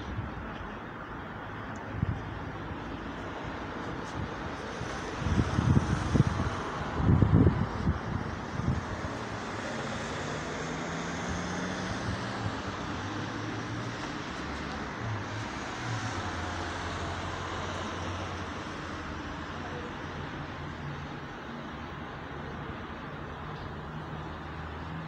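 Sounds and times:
low hum of engines: 0.0 - 25.0
tyres hissing on wet road: 2.5 - 25.0.

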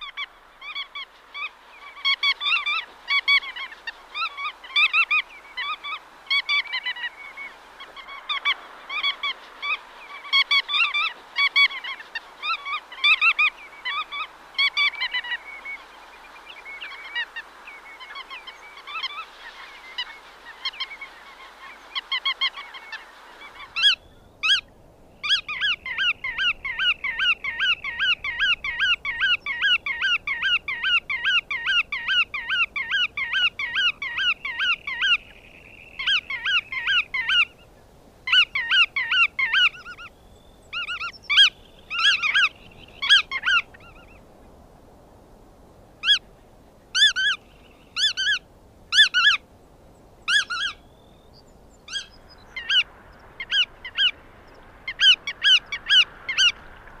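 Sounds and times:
godwit calling: 40.8 - 44.2, 46.0 - 46.2, 47.0 - 47.4, 48.0 - 49.4, 50.3 - 50.8, 51.9 - 54.2, 54.9 - 56.6.

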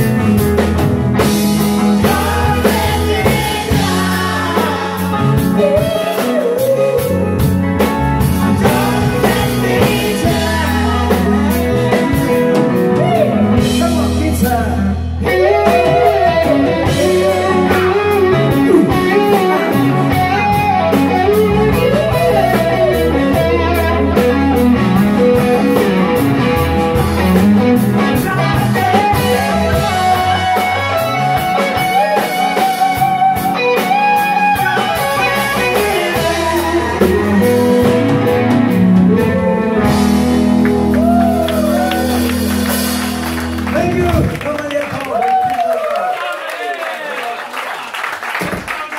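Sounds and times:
rock band playing: 0.0 - 45.7
electric guitar lines: 15.0 - 44.2.

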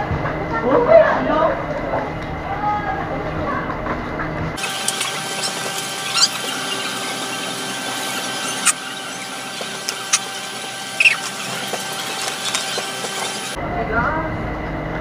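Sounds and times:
short high squeaks: 4.6 - 13.6.

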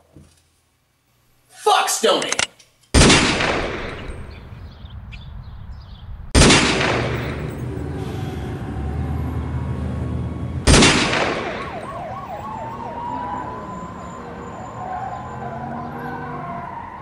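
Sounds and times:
warbling siren effect: 11.3 - 17.0.

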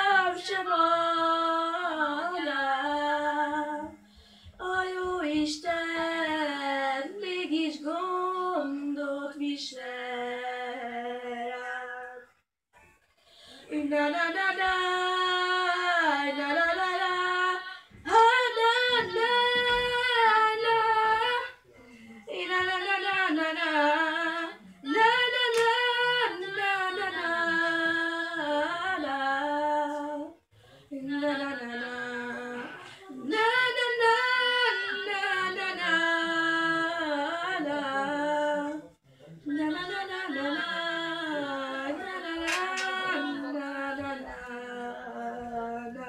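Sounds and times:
boy singing unaccompanied: 30.9 - 38.8, 39.5 - 46.0.

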